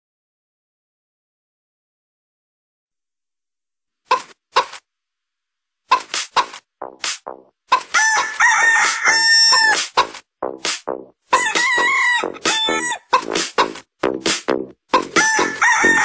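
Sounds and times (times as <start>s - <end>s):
techno track of chicken sounds: 5.9s - 16.0s.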